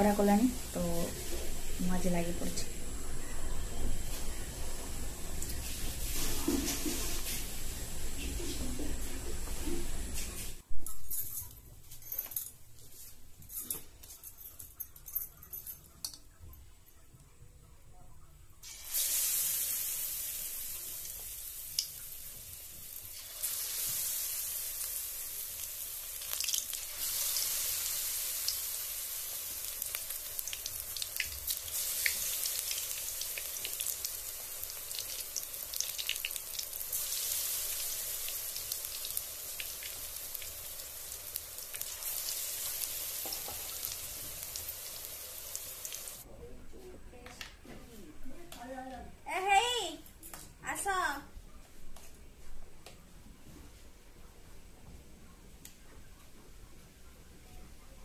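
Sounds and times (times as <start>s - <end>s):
food deep-frying in oil: 4.0s - 10.6s, 18.6s - 46.2s.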